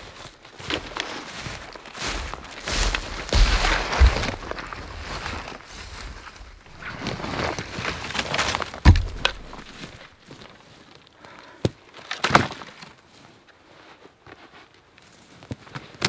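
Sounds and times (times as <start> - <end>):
branches rustling: 0.0 - 15.4
heavy thud of branches dropped: 2.1 - 10.1
wood knocking and clattering: 6.7 - 10.1.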